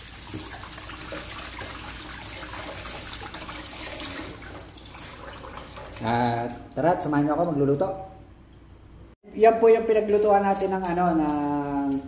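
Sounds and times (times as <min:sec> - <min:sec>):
water running: 0:00.0 - 0:07.5.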